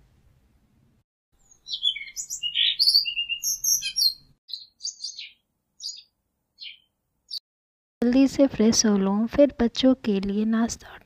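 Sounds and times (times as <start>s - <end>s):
small birds chirping: 1.4s - 7.4s.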